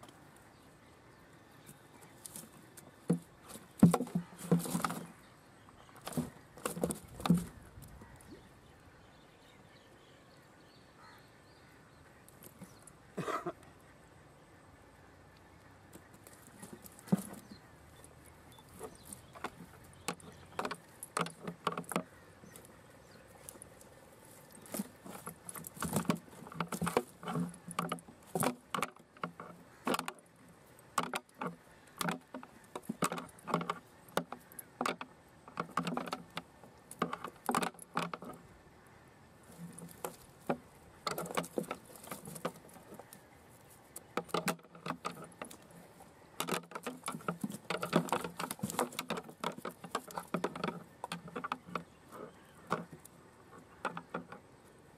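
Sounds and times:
prawns and fish flipping in crate: 0:02.2 - 0:05.2, 0:06.0 - 0:07.7, 0:24.3 - 0:38.5, 0:39.5 - 0:43.2, 0:43.8 - 0:53.1.

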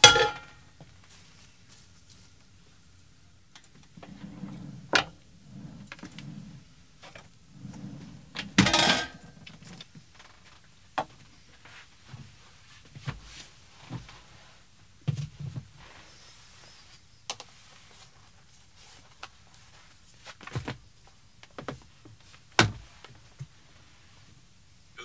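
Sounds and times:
cookware and utensils clattering: 0:00.0 - 0:00.5, 0:08.6 - 0:09.2.

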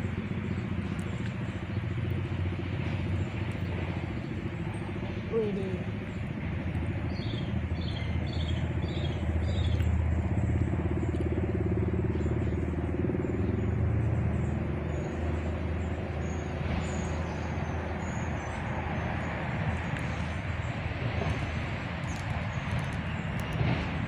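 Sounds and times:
low engine hum: 0:00.0 - 0:24.0
bird chirping: 0:07.1 - 0:10.0.

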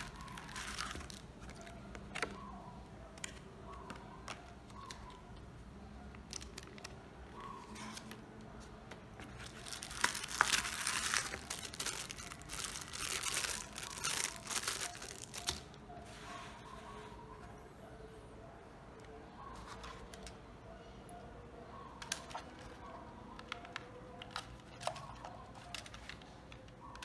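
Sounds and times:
packaging crinkling: 0:00.0 - 0:02.3, 0:09.1 - 0:15.8.

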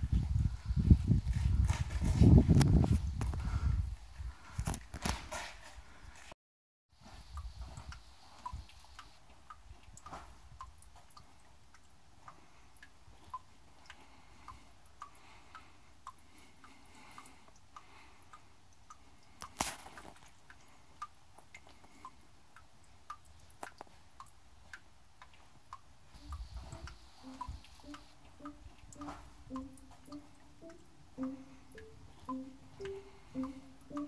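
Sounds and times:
low musical notes: 0:26.2 - 0:34.0
water drops plinking: 0:26.2 - 0:34.0.

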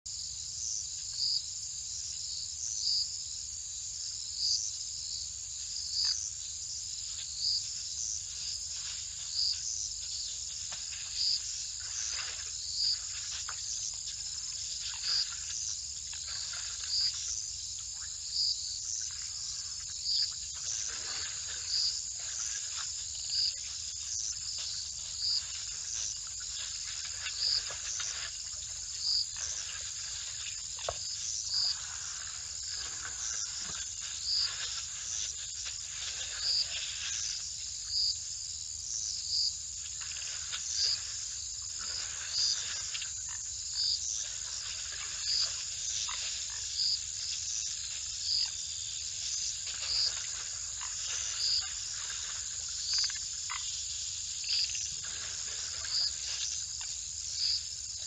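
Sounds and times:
crickets trilling: 0:00.1 - 0:58.0
elephants drinking: 0:08.1 - 0:18.2, 0:18.8 - 0:37.5, 0:40.0 - 0:57.5.

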